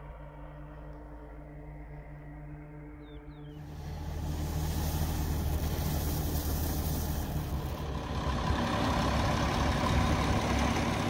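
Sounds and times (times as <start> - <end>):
tractor diesel engine running: 3.6 - 11.0.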